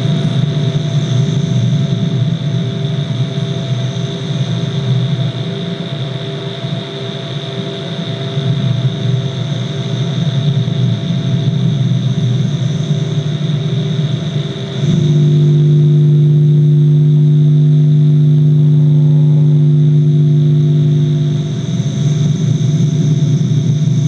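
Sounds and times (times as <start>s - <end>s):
electronic drone: 0.0s - 24.0s
pulsing mid tone: 14.8s - 24.0s.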